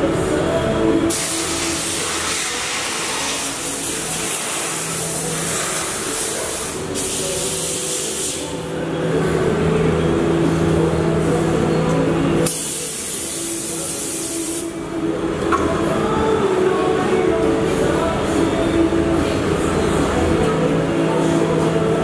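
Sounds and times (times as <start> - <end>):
low machine hum: 0.0 - 22.0
compressed air hissing: 1.1 - 8.6, 12.5 - 14.7.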